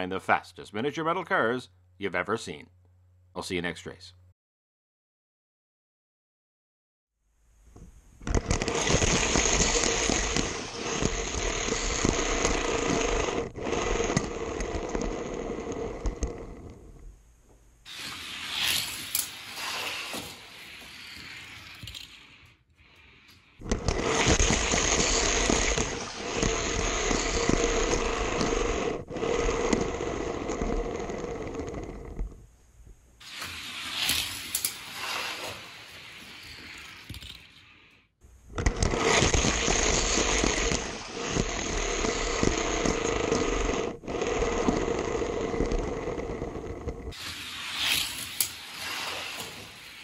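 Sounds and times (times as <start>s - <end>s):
toy car rolling on plastic track: 8.2s - 16.8s, 17.9s - 22.5s, 23.6s - 32.2s, 33.2s - 37.6s, 38.6s - 50.0s.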